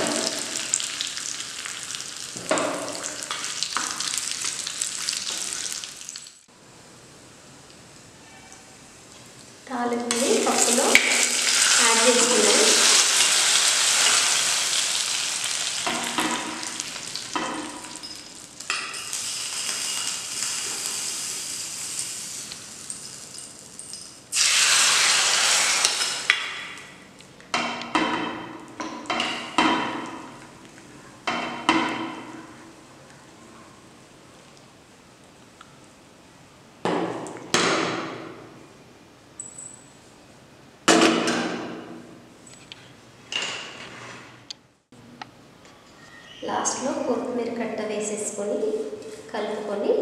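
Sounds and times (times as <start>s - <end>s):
hot oil sizzling in a pot: 0.0s - 6.5s, 10.1s - 26.6s
loud hiss: 19.0s - 22.8s, 24.3s - 26.3s.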